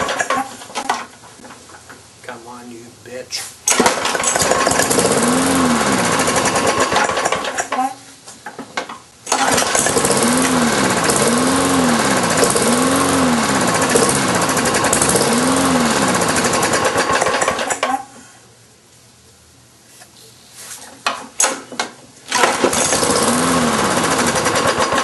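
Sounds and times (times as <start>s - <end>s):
lawn mower engine surging: 0.0s - 1.1s, 3.6s - 7.8s, 9.2s - 17.9s, 22.3s - 25.0s.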